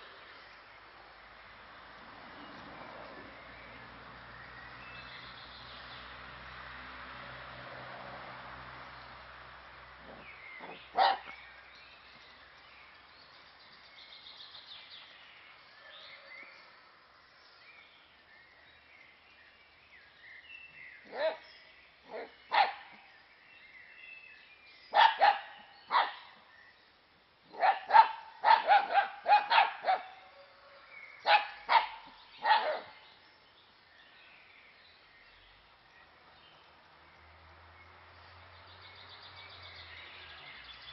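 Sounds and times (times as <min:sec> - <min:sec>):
dog barking: 0:10.1 - 0:11.4, 0:21.1 - 0:21.5, 0:22.1 - 0:22.9, 0:24.9 - 0:26.3, 0:27.5 - 0:30.2, 0:31.2 - 0:33.0.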